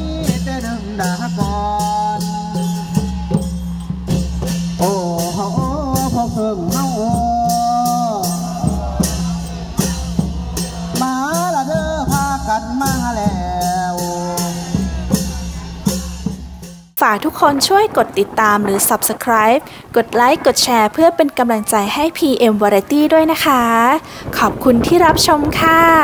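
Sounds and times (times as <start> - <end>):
long drums: 0.0 - 21.0
sharp percussion beat: 0.0 - 21.8.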